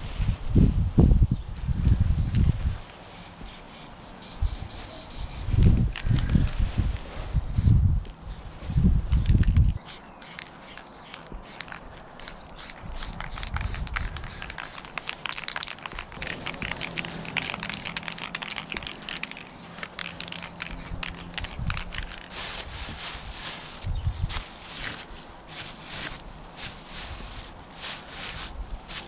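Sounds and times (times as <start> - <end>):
paint scraping on surface: 2.2 - 7.2.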